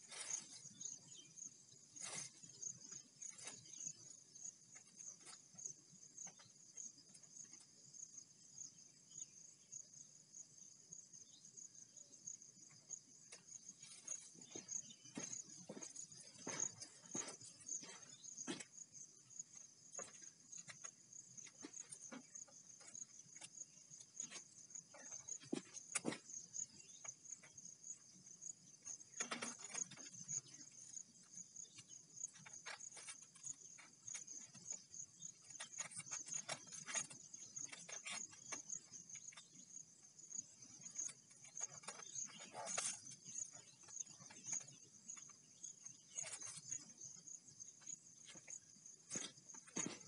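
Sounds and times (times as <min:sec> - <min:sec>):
insects chirring: 0:00.0 - 0:50.0
rope handling clicks and rustles: 0:29.1 - 0:30.6.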